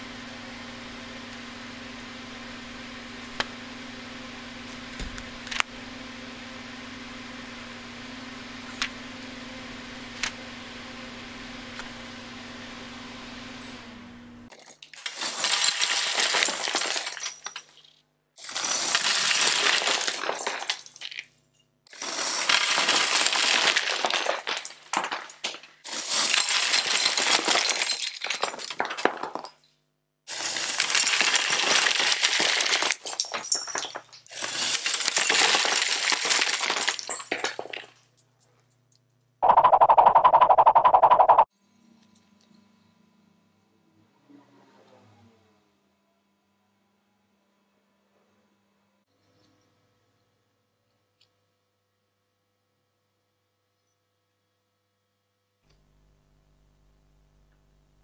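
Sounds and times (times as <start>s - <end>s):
plastic bricks clattering: 14.5s - 17.9s, 18.5s - 21.3s, 22.0s - 29.7s, 30.3s - 38.0s.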